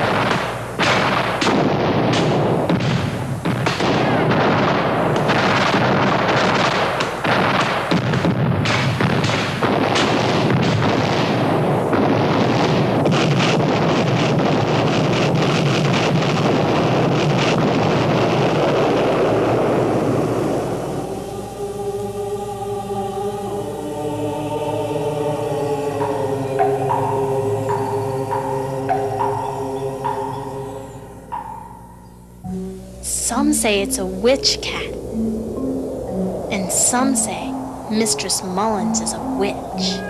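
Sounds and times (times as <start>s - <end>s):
sharp rifle shots: 0.0s - 19.7s
din of shooting and explosions: 0.0s - 21.2s, 30.9s - 40.0s.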